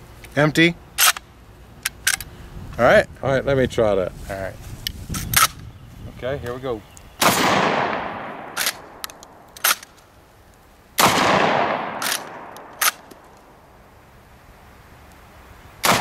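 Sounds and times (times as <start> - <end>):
shotgun blasts: 7.2 - 9.8, 11.0 - 13.1.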